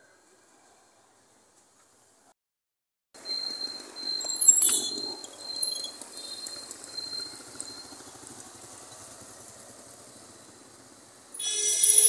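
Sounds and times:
high-pitched whine: 3.2s - 8.3s, 11.3s - 12.0s.

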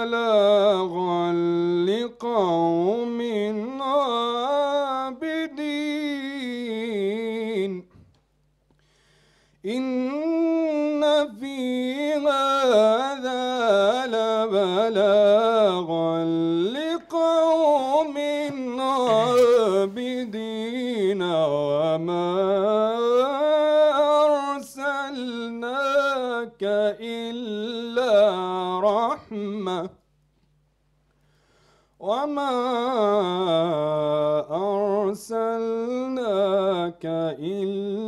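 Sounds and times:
man chanting melodically: 9.7s - 30.0s.

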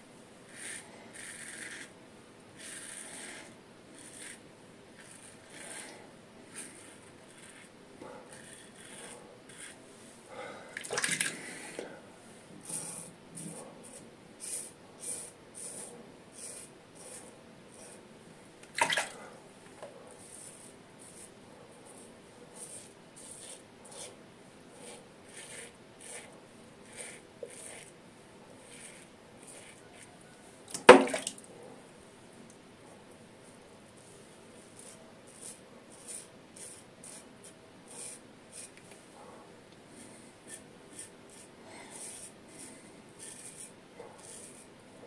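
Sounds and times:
razor scraping stubble: 6.5s - 7.7s, 8.3s - 9.8s, 12.6s - 18.0s, 24.8s - 27.9s, 28.6s - 30.2s, 40.0s - 44.7s.

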